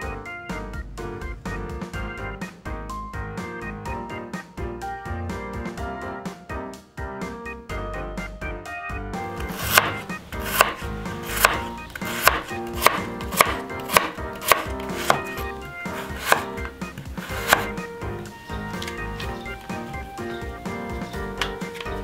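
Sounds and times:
soft piano music: 0.0 - 22.0
knife chopping on cutting board: 9.4 - 17.8.

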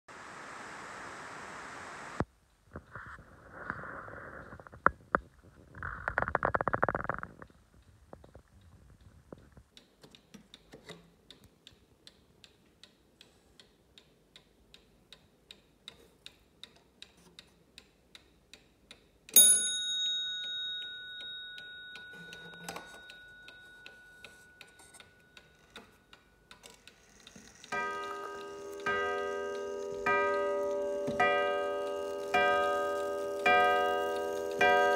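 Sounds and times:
clock ticking: 9.7 - 34.9
clock bell strike: 19.4 - 24.9, 27.7 - 34.9.

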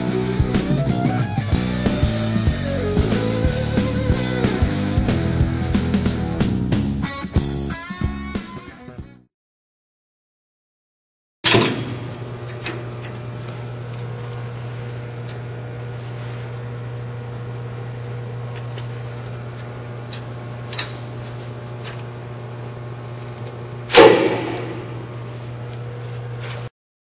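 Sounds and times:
metal latch clanking shut: 11.4 - 12.0
steady low hum: 12.0 - 26.4.

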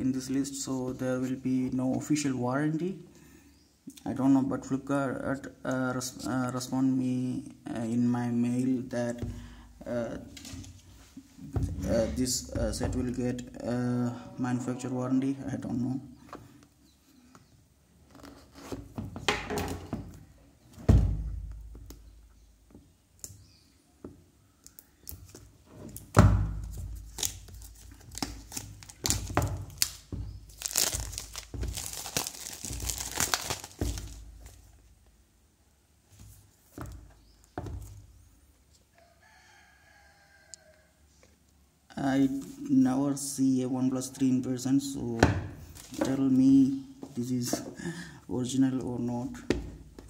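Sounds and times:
plastic wrap crinkling and tearing: 26.9 - 34.7
box thumps: 29.0 - 34.6.

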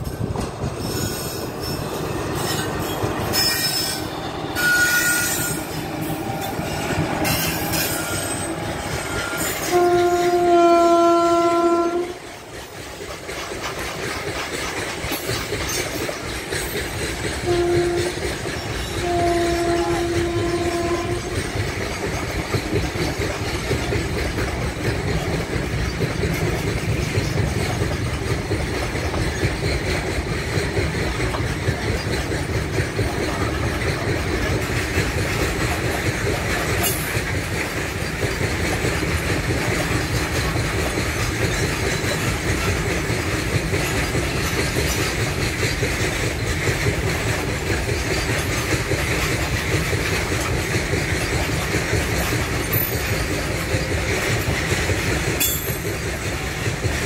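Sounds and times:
train wheels rumbling on rails: 0.0 - 57.0
train horn blasts: 3.3 - 12.2, 17.4 - 21.4.

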